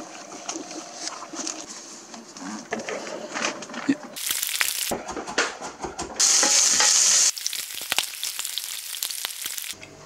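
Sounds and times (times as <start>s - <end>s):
fish sizzling in frying oil: 4.2s - 4.9s, 6.2s - 9.8s.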